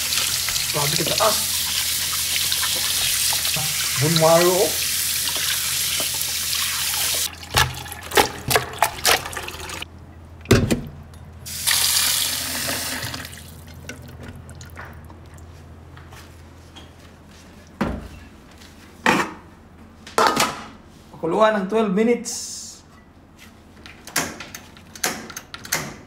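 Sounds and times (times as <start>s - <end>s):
tap water running in a sink: 0.0s - 9.9s, 11.5s - 15.1s.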